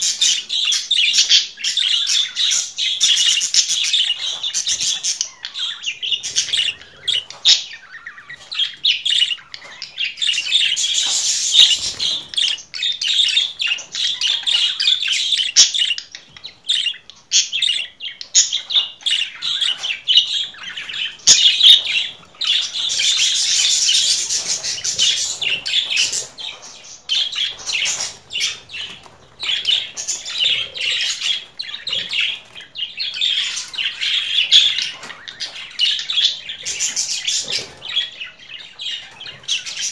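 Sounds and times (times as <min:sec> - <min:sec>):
budgerigars chattering: 0:00.0 - 0:39.9.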